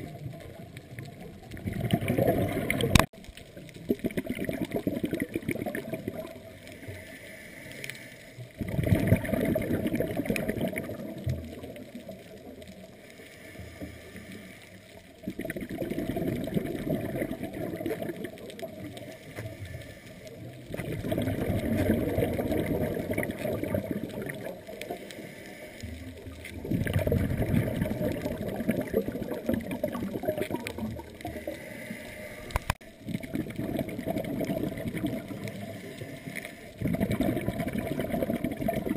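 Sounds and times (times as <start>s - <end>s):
underwater bubbles gurgling: 0.0s - 38.9s
diver inhaling through regulator: 6.6s - 8.4s, 13.0s - 14.9s, 19.0s - 20.4s, 24.9s - 26.2s, 31.2s - 32.8s, 35.3s - 36.9s.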